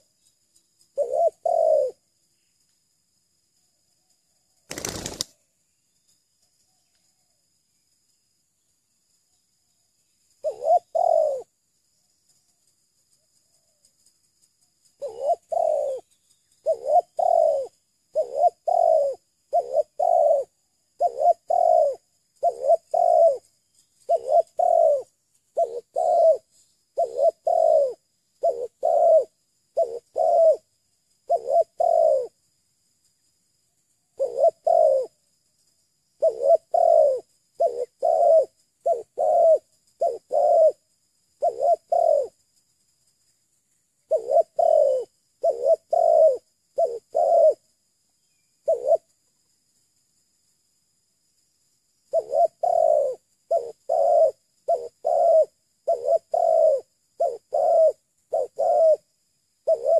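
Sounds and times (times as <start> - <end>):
dove cooing: 1.0 - 2.0, 4.7 - 5.2, 10.4 - 11.5, 15.0 - 32.4, 34.2 - 35.2, 36.2 - 40.8, 41.4 - 42.4, 44.1 - 47.7, 48.6 - 49.1, 52.1 - 59.9.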